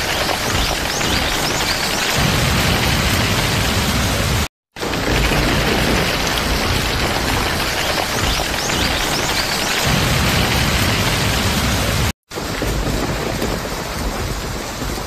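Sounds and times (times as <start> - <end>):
heavy rain falling: 0.0 - 15.0.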